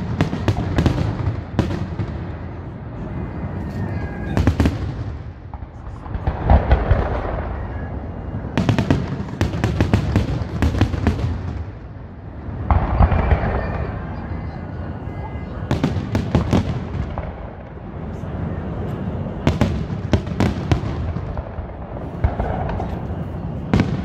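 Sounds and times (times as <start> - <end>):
fireworks bangs and crackles: 0.0 - 24.0
deep firework boom: 4.4 - 7.8, 12.5 - 14.1.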